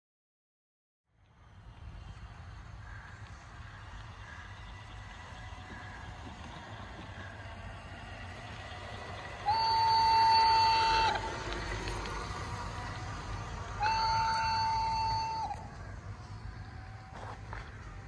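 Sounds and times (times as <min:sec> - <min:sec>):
model train rolling on track: 0:01.3 - 0:18.0
model train horn: 0:09.3 - 0:11.7, 0:13.8 - 0:15.7.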